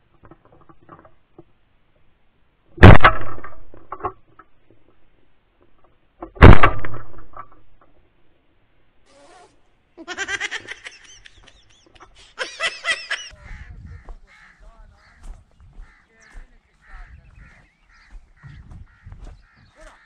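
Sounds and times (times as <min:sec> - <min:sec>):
shotgun shot: 0:02.8 - 0:03.6, 0:06.4 - 0:07.1
bird harsh calls: 0:10.2 - 0:20.0.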